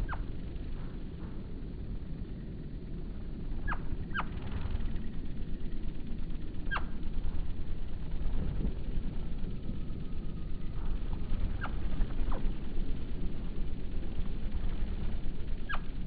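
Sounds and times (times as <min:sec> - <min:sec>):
hummingbird chirps sliding downward: 0:00.0 - 0:00.8, 0:03.6 - 0:08.1, 0:09.3 - 0:16.0
steady low rumble: 0:00.0 - 0:16.0.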